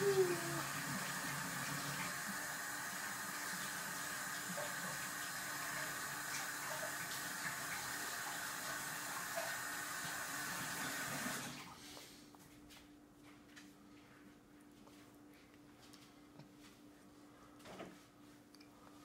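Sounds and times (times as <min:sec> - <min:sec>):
water running from tap: 0:00.0 - 0:11.6.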